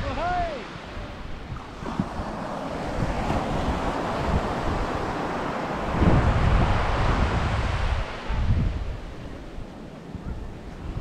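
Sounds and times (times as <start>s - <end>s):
sea surf washing on shore: 0.0s - 11.0s
wind on microphone: 0.0s - 11.0s.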